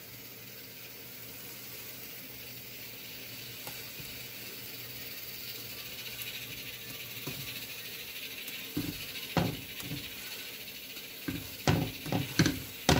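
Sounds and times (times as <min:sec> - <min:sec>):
pancake sizzling in hot oil: 0:00.0 - 0:12.9
spatula knocking against pan: 0:08.8 - 0:10.0, 0:11.3 - 0:12.9.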